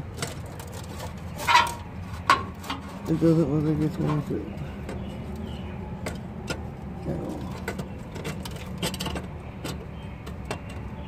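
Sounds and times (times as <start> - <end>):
metal pipe clinking against pipe: 1.4 - 2.8.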